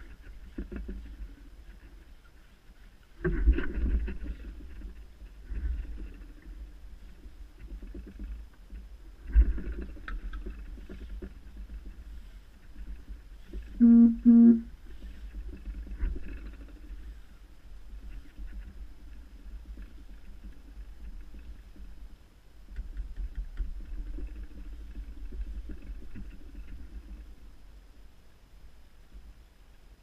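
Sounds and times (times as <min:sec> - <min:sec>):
low rumble on microphone: 0:00.0 - 0:22.8
short pitched hoots: 0:13.8 - 0:14.7.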